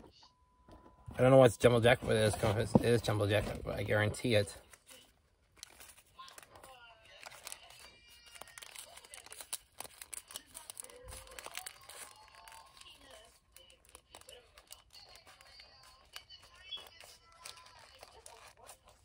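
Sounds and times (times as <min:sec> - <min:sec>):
paper wrapper crinkling and tearing: 0:01.6 - 0:19.0.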